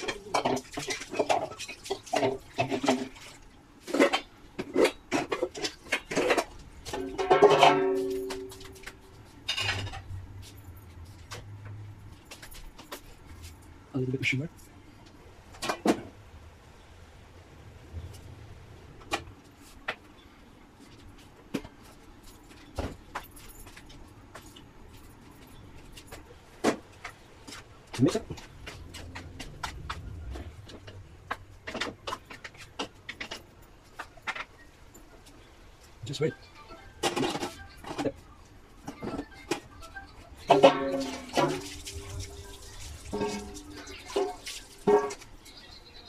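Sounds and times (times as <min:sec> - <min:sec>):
kitchenware clattering: 0:00.0 - 0:11.6, 0:36.8 - 0:38.2, 0:38.8 - 0:46.0
metal clinks and knocks in a wok: 0:03.9 - 0:10.2.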